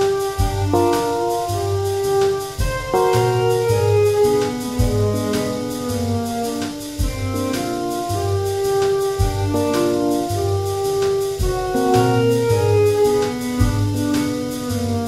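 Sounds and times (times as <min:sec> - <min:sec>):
jazz instrumental: 0:00.0 - 0:15.0
deep low thump: 0:04.8 - 0:05.2, 0:13.6 - 0:14.0.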